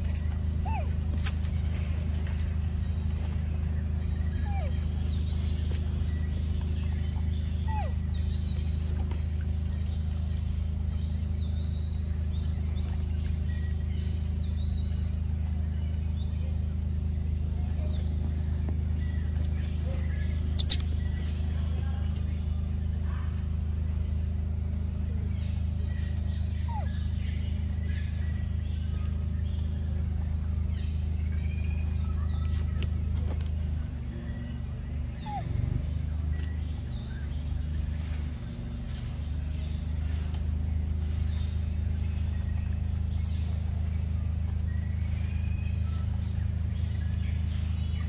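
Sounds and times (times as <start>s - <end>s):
low rumble: 0.0s - 48.0s
steady low hum: 0.0s - 48.0s
faint bird chirps: 2.3s - 48.0s
bird whistled call: 19.9s - 21.3s, 25.9s - 28.9s.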